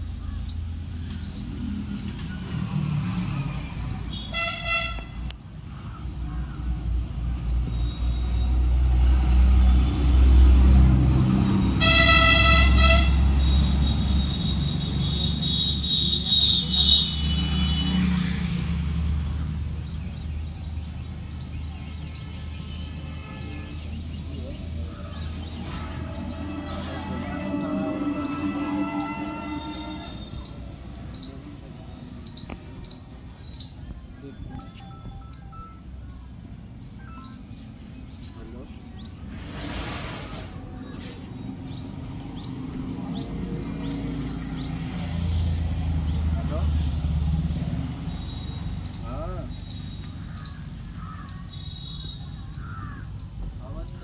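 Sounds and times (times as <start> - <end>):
vehicle horn toots: 4.1 - 5.2, 11.8 - 18.1, 26.2 - 30.6.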